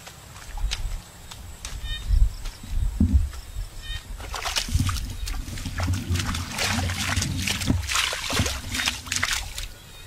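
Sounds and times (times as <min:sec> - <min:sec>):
wet mud squelching: 0:04.2 - 0:09.8.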